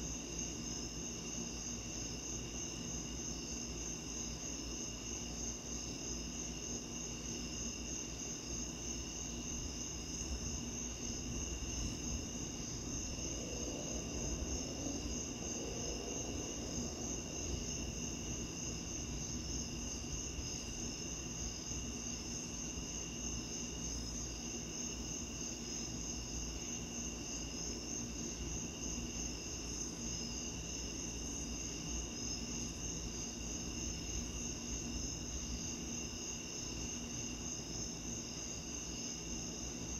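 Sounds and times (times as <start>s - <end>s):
crickets trilling: 0.0s - 39.9s
low steady background noise: 0.0s - 39.9s.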